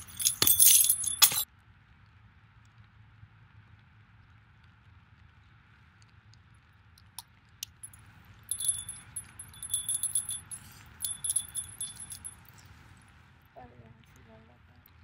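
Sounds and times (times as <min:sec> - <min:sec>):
hand bell ringing: 0:00.0 - 0:01.4, 0:08.5 - 0:12.4.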